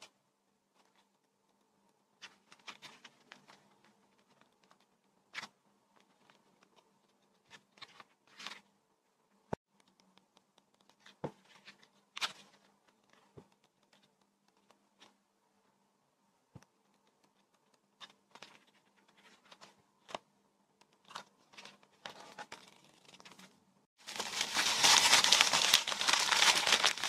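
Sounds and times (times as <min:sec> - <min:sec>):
paper rustling: 0:21.1 - 0:27.0.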